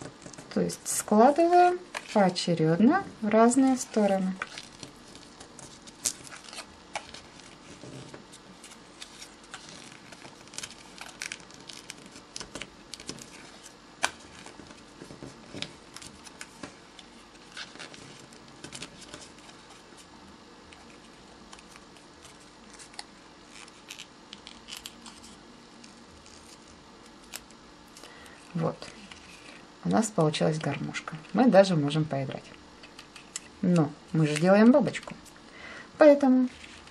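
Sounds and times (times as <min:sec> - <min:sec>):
paper crinkling and creasing: 0:03.5 - 0:20.1, 0:20.7 - 0:29.6, 0:36.2 - 0:36.9.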